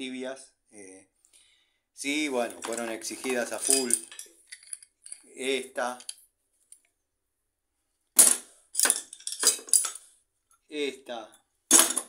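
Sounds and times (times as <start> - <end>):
steel hand tools clanking: 2.5 - 5.2.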